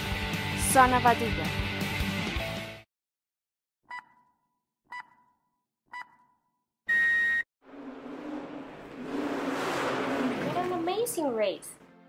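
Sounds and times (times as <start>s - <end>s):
countdown beeps: 3.9s - 4.3s, 4.9s - 5.3s, 5.9s - 6.3s, 6.9s - 7.4s.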